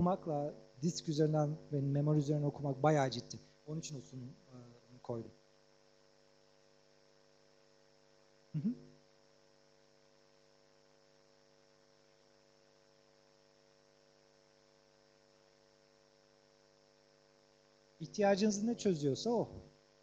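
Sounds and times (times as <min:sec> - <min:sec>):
electrical mains hum: 0:00.0 - 0:20.0
faint high whine: 0:00.0 - 0:20.0.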